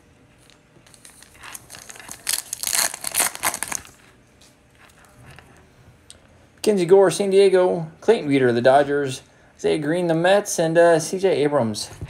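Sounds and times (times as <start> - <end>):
card handling: 0.4 - 4.1
wrapper crinkling as torn open: 0.4 - 4.1.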